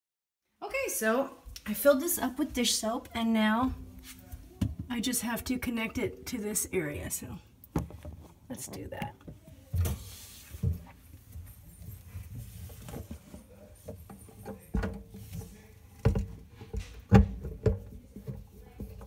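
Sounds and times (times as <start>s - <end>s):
bottle knocking and scraping: 11.7s - 19.0s.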